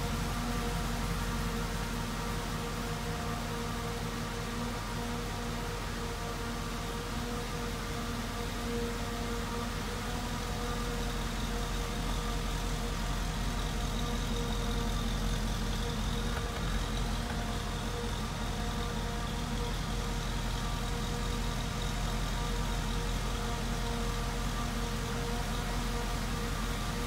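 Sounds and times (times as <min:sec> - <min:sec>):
car engine idling: 0:09.7 - 0:27.0.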